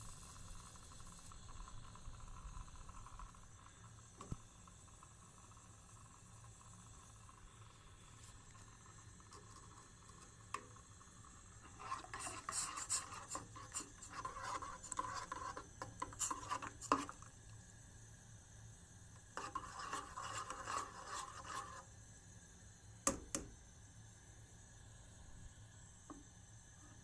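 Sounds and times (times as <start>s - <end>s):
metal spoon scraping and stirring: 11.6s - 17.3s, 19.3s - 21.9s.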